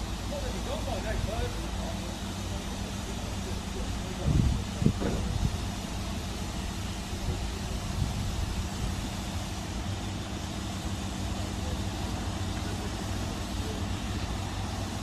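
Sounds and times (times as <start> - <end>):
diesel locomotive engine running: 0.0 - 15.0.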